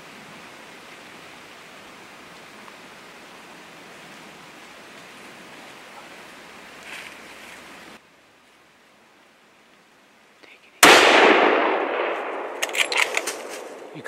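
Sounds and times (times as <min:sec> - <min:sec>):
steady hiss: 0:00.0 - 0:10.9
gunshot echoing through woods: 0:10.8 - 0:14.0.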